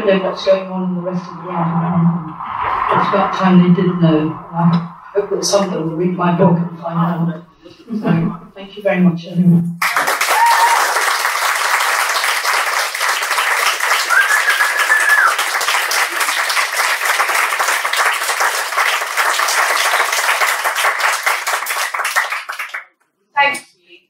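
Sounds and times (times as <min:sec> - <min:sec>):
audience applauding: 0:09.8 - 0:22.9.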